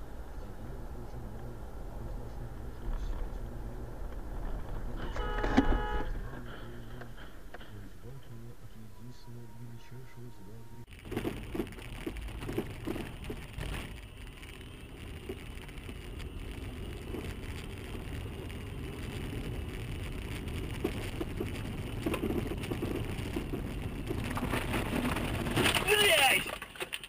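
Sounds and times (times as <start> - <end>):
vehicle road rumble: 0.0 - 27.0
faint high whine: 4.8 - 25.0.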